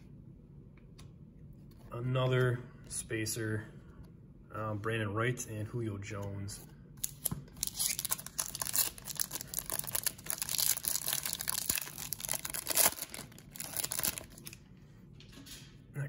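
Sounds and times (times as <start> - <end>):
wrapper crinkling and tearing: 7.0 - 14.6.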